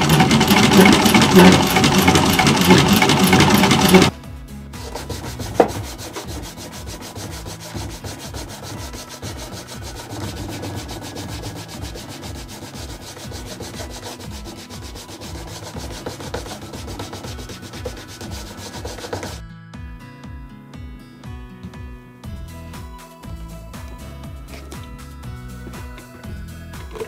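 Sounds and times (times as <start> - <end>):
cloth rubbing on leather: 4.8 - 19.4.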